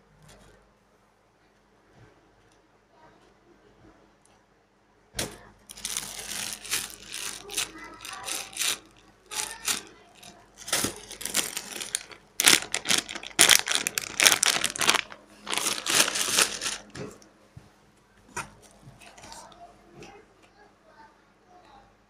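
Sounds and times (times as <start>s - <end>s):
plastic packaging crinkling: 5.7s - 17.2s.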